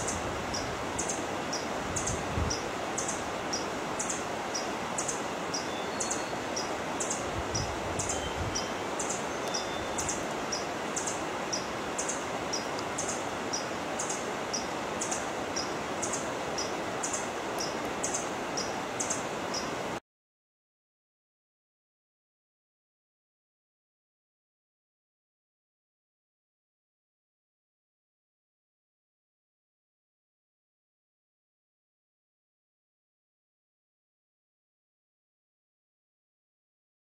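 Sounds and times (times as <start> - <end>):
forest ambience hiss: 0.0 - 20.0.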